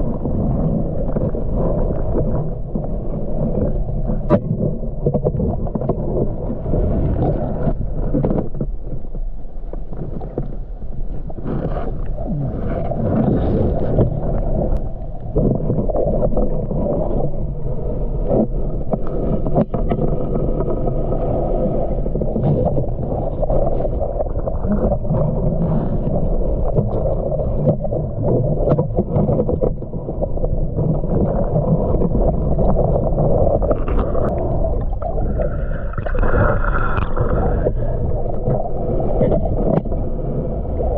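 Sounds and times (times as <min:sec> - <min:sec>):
small underwater clicks and knocks: 0:00.0 - 0:17.4, 0:18.2 - 0:21.0, 0:22.1 - 0:40.1
underwater rumble of moving water: 0:00.0 - 0:40.9.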